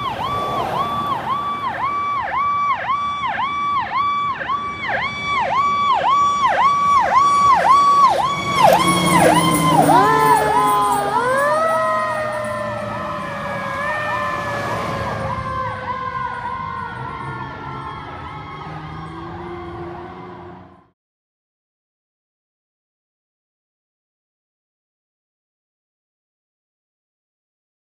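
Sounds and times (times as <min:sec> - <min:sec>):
siren tone rising and falling: 0:00.0 - 0:20.9
truck rushing past: 0:00.0 - 0:20.9
fire engine siren sweeping: 0:00.0 - 0:21.0.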